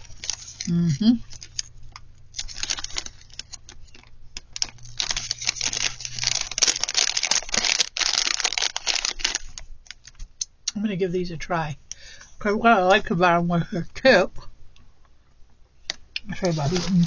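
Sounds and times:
plastic packaging crackling: 0.0 - 10.2.

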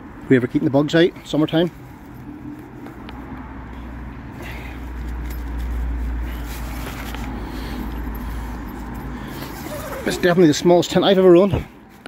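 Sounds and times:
nylon tent fabric rustling: 4.9 - 12.0.

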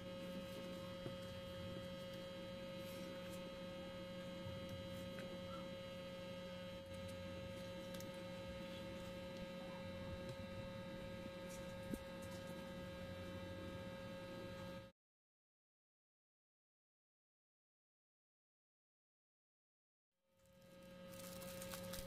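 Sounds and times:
electrical hum: 0.0 - 14.9, 20.3 - 22.0
paper stickers rustling: 20.5 - 22.0.

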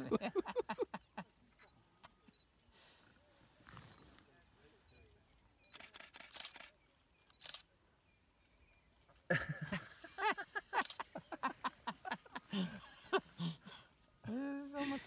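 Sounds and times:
camera shutter clicks: 5.7 - 7.7.

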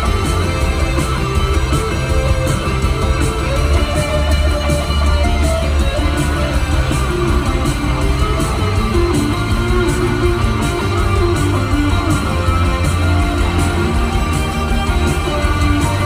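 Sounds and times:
live rock band playing: 0.0 - 16.0.

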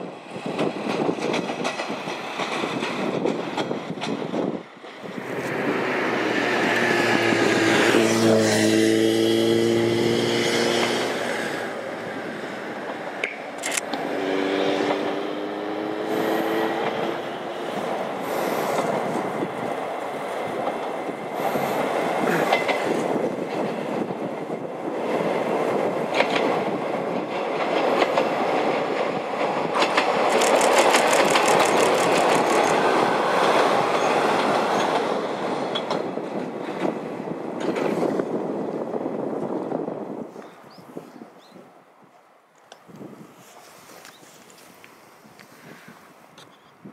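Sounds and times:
wheels clicking over rail joints: 0.5 - 4.4, 20.5 - 24.5, 26.0 - 37.0
diesel railcar running noise: 11.0 - 40.2.

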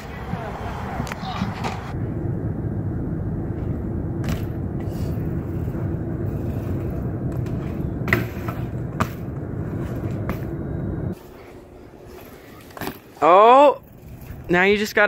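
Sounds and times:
bike rolling over concrete: 3.4 - 15.0.

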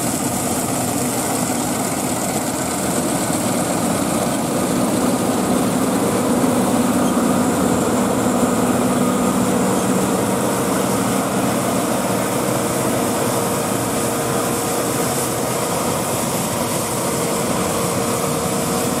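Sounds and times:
combine harvester droning: 0.0 - 19.0.

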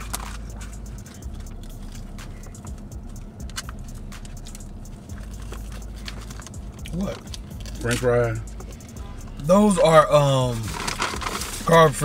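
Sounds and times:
car interior hum: 0.0 - 12.0
paper packaging rustling: 5.2 - 8.0, 10.5 - 12.0.

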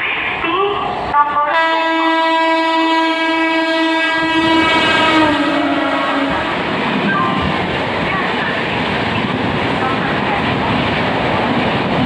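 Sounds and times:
train coaches rushing and clattering: 0.0 - 12.0
train horn blast: 1.2 - 6.6.

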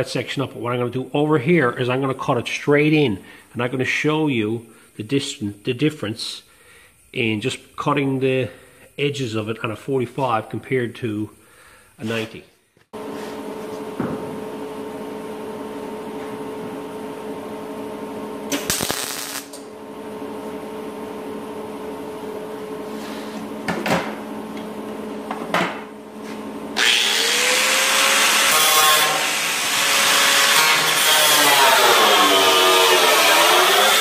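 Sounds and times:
angle grinder whining: 26.8 - 34.0
grinder cutting steel: 26.8 - 34.0.

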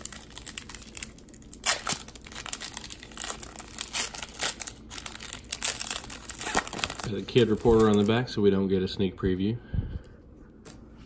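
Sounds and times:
foil wrapper tearing and crinkling: 0.0 - 8.3.

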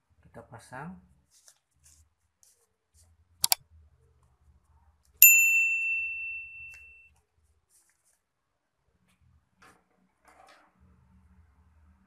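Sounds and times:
bell ding: 5.2 - 7.1.

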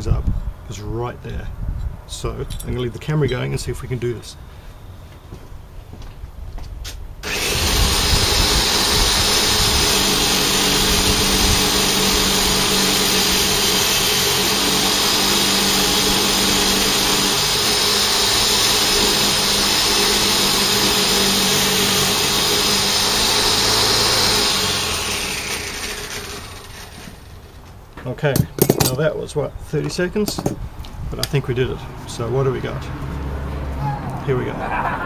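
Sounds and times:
electric polishing machine running: 7.2 - 27.3.

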